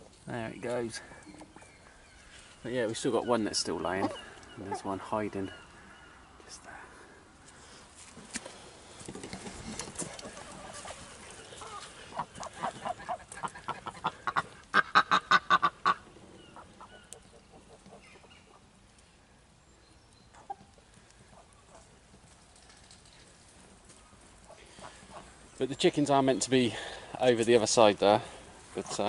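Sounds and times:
waterfowl calling: 3.0 - 6.4, 10.2 - 18.6.

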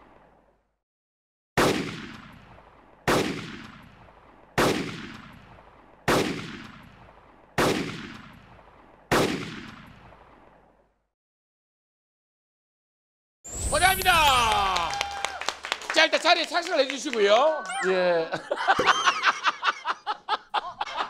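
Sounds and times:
gunshot-like impacts with echo: 1.6 - 10.6.

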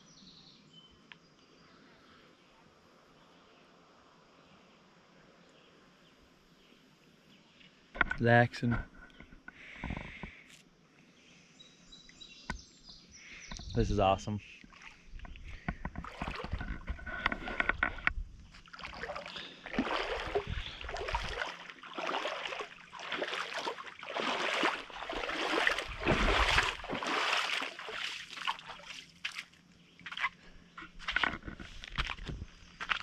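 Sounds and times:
water splashing as person wades: 14.6 - 15.2, 15.9 - 17.6, 18.4 - 31.2.

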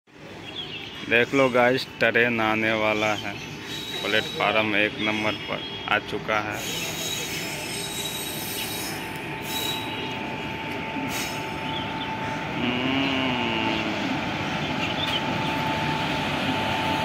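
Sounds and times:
train wheels rumbling on rail: 0.2 - 17.0
high wheel squeal: 3.0 - 4.5, 6.5 - 10.1.

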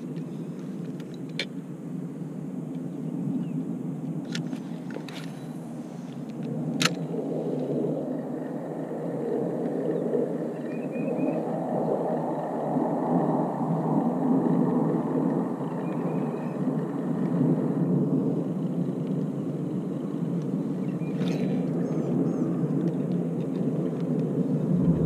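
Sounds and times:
low rumbling noise: 23.7 - 25.0.

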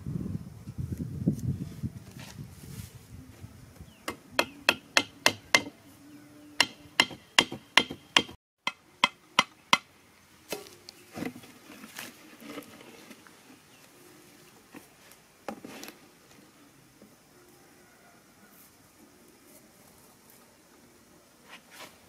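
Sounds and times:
stake hammered into ground: 6.6 - 9.9.

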